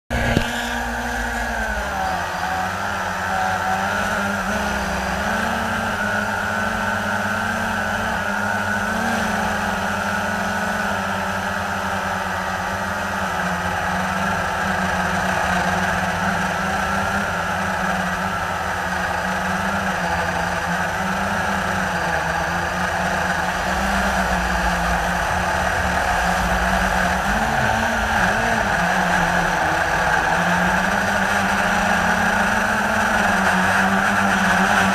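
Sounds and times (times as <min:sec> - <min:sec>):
drone propellers buzzing: 0:00.1 - 0:34.9.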